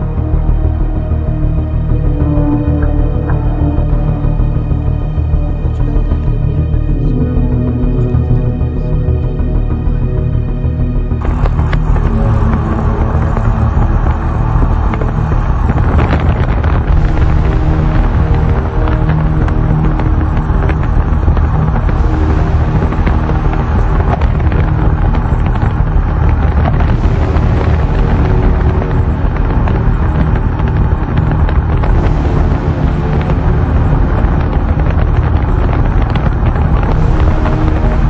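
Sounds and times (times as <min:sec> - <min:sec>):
road and engine noise inside car: 0:11.2 - 0:38.0.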